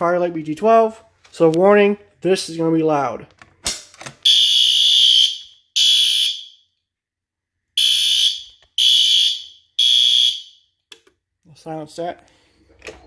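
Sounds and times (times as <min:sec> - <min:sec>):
fire alarm horn blasts: 0:04.2 - 0:06.7, 0:07.8 - 0:10.7.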